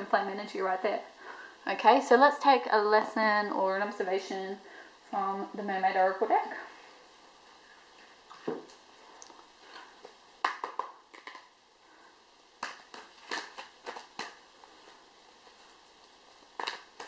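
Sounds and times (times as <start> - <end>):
cards shuffling: 12.6 - 14.5, 16.6 - 17.0.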